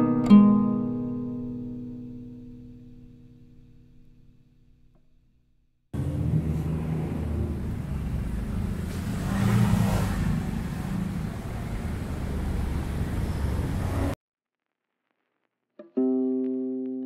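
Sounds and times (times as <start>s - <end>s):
car and motorbike engines: 6.0s - 14.2s.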